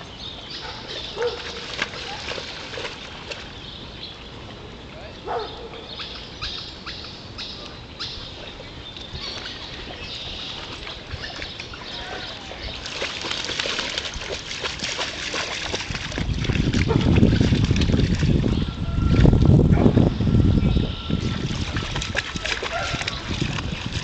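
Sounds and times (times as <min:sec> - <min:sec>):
dog splashing through water: 0:00.8 - 0:03.7, 0:09.2 - 0:19.2, 0:21.2 - 0:24.0.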